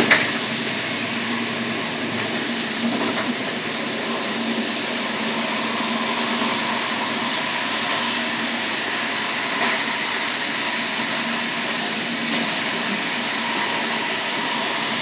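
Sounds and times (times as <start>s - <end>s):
faint hum: 0.0s - 9.4s, 12.7s - 15.0s
train wind and wheel-on-rail noise: 0.0s - 15.0s.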